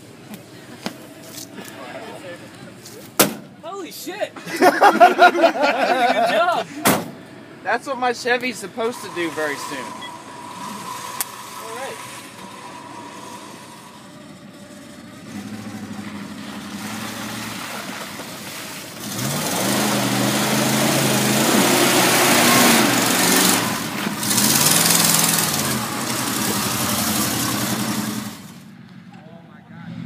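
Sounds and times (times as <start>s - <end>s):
truck engine revving hard: 5.0s - 28.7s
tyres spinning in mud: 10.4s - 28.6s.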